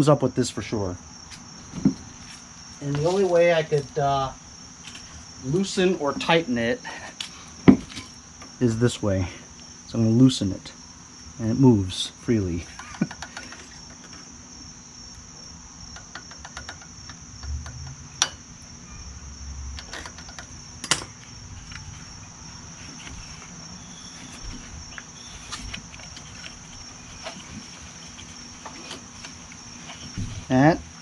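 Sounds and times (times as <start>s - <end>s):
high insect drone: 0.0s - 31.0s
soft knocks: 1.7s - 2.1s.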